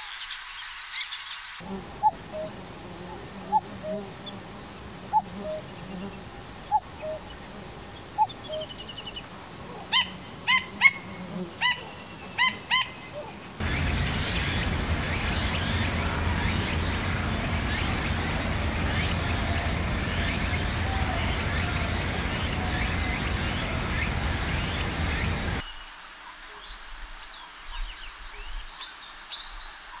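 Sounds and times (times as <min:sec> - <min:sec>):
cuckoo calling: 0:01.9 - 0:02.6, 0:03.4 - 0:04.1, 0:05.1 - 0:05.7, 0:06.7 - 0:07.4, 0:08.1 - 0:11.0, 0:11.6 - 0:25.6
steady noisy background: 0:13.6 - 0:25.6.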